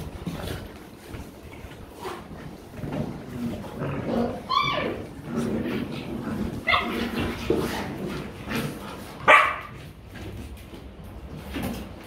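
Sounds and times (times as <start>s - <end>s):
puppies barking and yipping: 6.5s - 7.4s.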